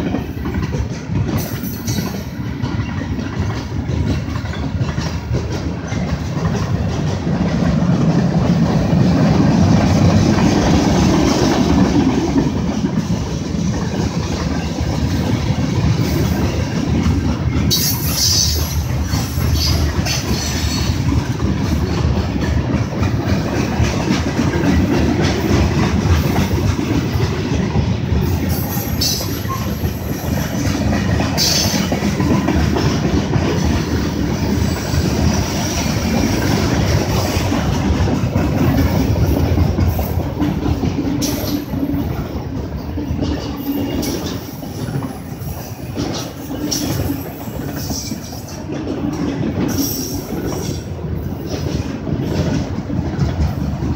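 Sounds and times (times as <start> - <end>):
freight train wheels clattering: 0.0 - 53.9.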